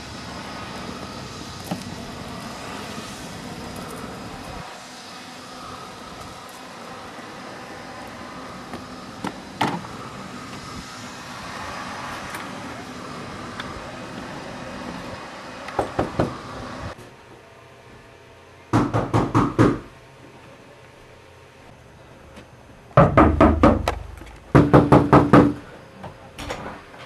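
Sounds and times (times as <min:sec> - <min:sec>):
outdoor background hum: 0:00.0 - 0:27.0
knocking on a door: 0:18.8 - 0:19.9, 0:23.0 - 0:25.6.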